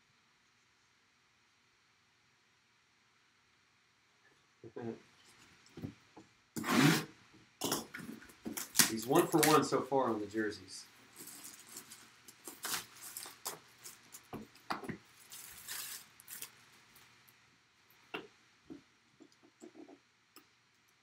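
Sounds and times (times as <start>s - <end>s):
plastic wrapping rustling: 7.9s - 9.8s, 11.0s - 17.3s.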